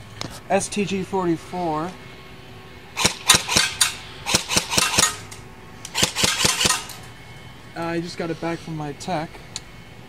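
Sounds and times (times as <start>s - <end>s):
airsoft rifle shots: 3.0s - 5.3s, 5.9s - 7.0s.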